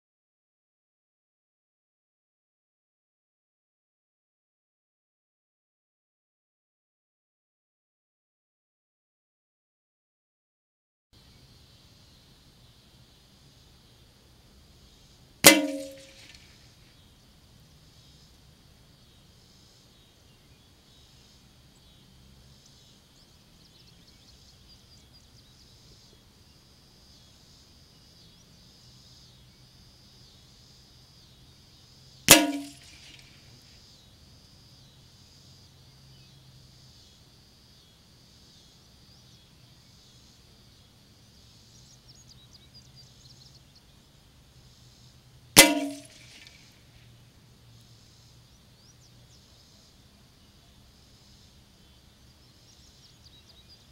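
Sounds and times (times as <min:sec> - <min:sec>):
rifle shots: 0:15.4 - 0:16.3.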